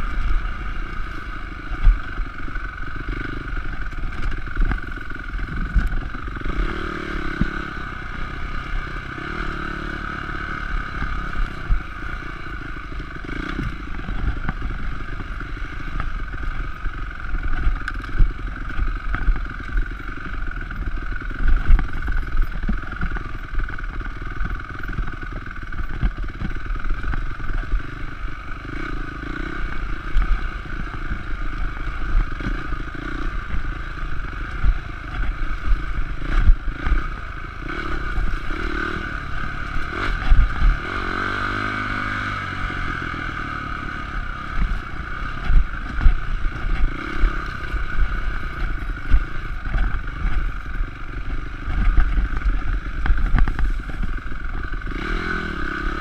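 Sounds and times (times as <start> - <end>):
dirt bike engine running: 0.0 - 56.0
bike knocks and rattles: 13.3 - 27.9, 44.4 - 55.1.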